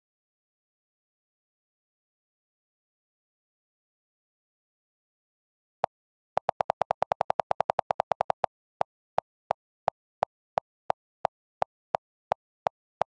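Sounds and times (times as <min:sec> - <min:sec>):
phone keyboard clicks: 0:06.4 - 0:08.5.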